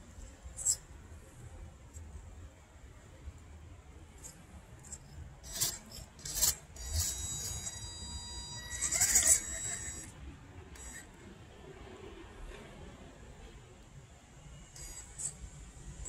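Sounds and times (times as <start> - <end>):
toy car motor whining: 0.6 - 0.9, 4.2 - 11.2, 14.7 - 15.5.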